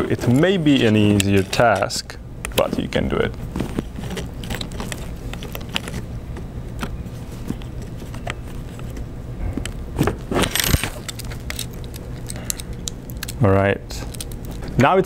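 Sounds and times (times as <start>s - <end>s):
plastic and metal parts clicking: 0.1s - 2.7s
clattering rattle: 10.3s - 12.6s.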